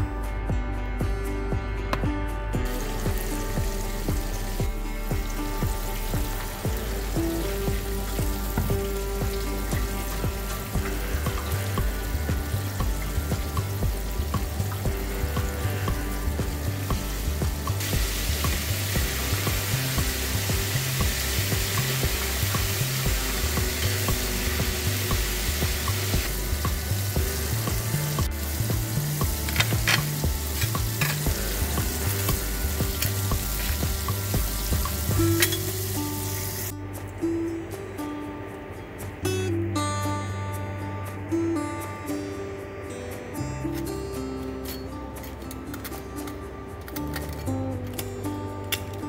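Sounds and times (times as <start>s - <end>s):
background music with bass line: 0.0s - 49.0s
chicken frying in hot oil: 2.7s - 36.7s.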